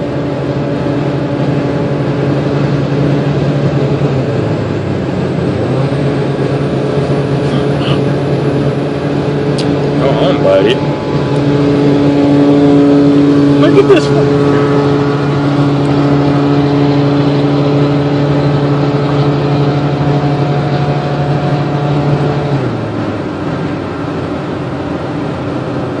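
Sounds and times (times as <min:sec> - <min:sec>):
car engine drone: 0:00.0 - 0:26.0.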